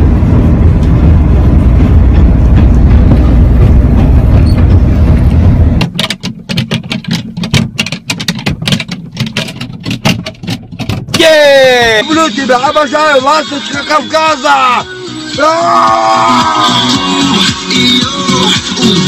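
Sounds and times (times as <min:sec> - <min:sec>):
subway train rumbling: 0:00.0 - 0:05.9.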